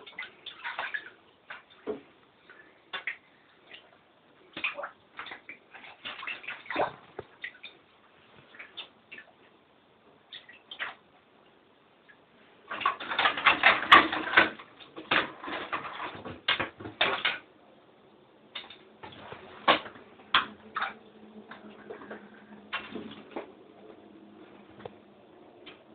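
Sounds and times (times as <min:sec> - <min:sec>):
water splashing: 0:00.0 - 0:09.4, 0:10.3 - 0:11.1.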